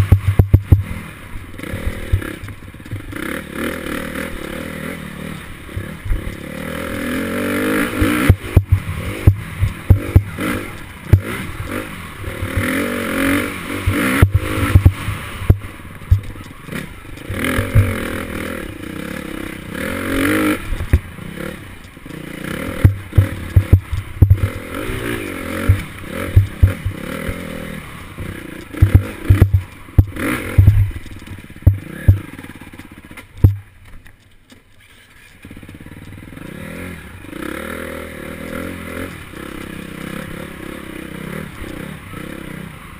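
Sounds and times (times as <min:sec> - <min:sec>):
bike thumping over bumps: 0:00.0 - 0:01.0, 0:07.6 - 0:18.8, 0:20.1 - 0:34.6
dirt bike engine revving: 0:00.0 - 0:33.7, 0:34.9 - 0:42.9.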